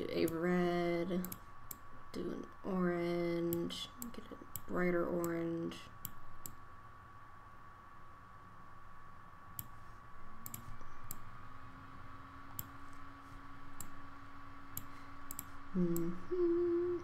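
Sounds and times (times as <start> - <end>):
computer mouse clicking: 1.2 - 1.8, 6.0 - 6.6, 9.6 - 9.8, 10.4 - 11.3, 12.5 - 13.0, 13.7 - 14.0, 14.7 - 16.1
person humming: 15.7 - 17.0.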